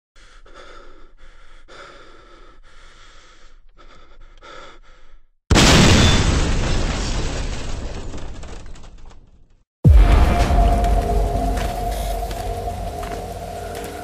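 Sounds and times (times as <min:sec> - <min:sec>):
person breathing: 0:00.2 - 0:05.4
loud explosion: 0:05.5 - 0:07.4, 0:09.8 - 0:13.2.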